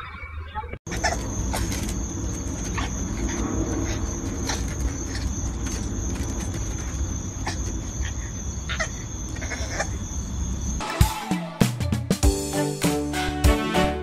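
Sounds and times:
high-pitched insect trill: 0.9s - 10.8s.

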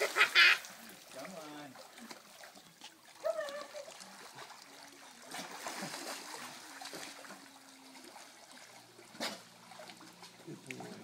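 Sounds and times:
sharp splash: 0.0s - 4.6s, 5.2s - 7.4s, 8.0s - 10.0s
pool water splashing and lapping: 0.0s - 11.0s.

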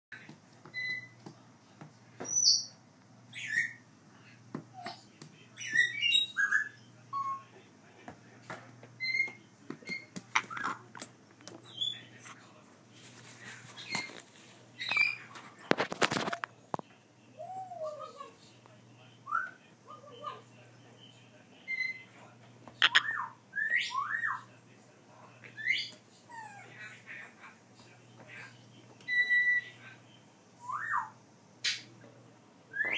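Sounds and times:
parrot chirps and whistles: 0.7s - 1.2s, 5.6s - 7.5s, 22.8s - 24.4s, 29.1s - 29.7s, 30.6s - 31.8s
parrot clicks: 22.8s - 23.0s
parrot whistled calls: 29.1s - 29.7s, 30.6s - 31.2s.

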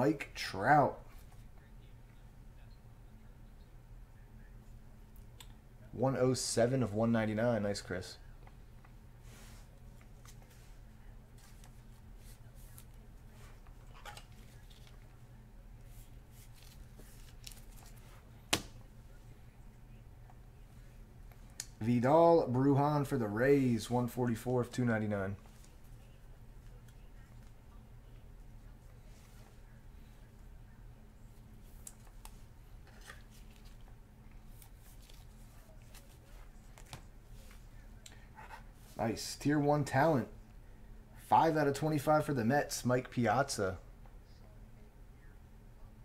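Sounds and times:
steady low hum: 0.0s - 46.0s
faint plastic rustling: 8.4s - 19.5s, 25.2s - 30.5s, 31.2s - 39.0s.

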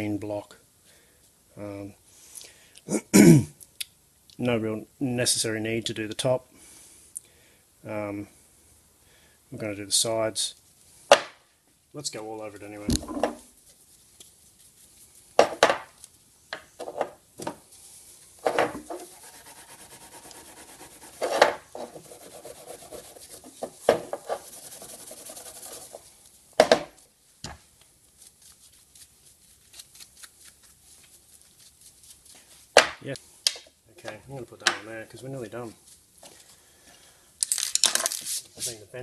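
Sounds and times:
steel wool rasping on metal: 18.8s - 26.0s.

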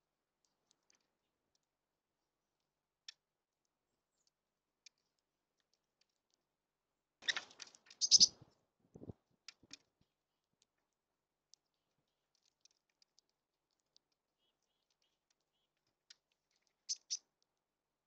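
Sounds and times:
birds clicking and tapping at feeder: 7.2s - 8.4s, 9.0s - 10.0s, 11.5s - 17.2s.

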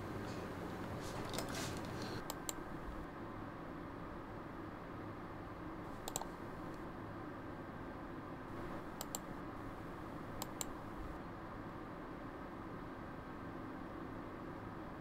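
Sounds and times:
faint room hum: 0.0s - 15.0s
mouse button clicks: 6.1s - 6.3s, 9.0s - 9.2s.

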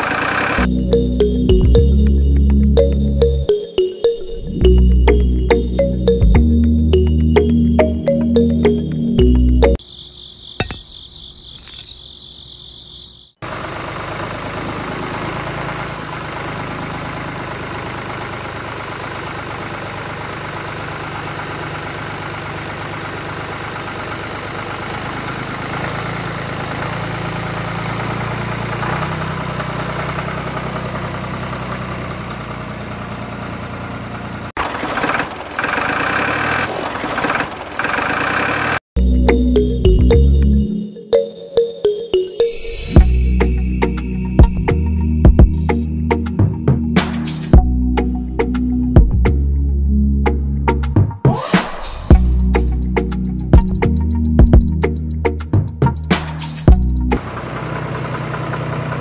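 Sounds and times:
tractor engine idling: 0.0s - 3.4s, 13.4s - 38.8s, 52.1s - 59.0s.

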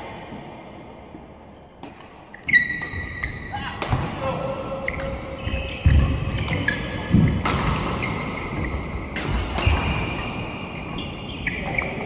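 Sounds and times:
shoes squeaking on court: 1.9s - 3.6s, 4.8s - 12.0s
racket striking shuttlecock: 9.0s - 10.1s.

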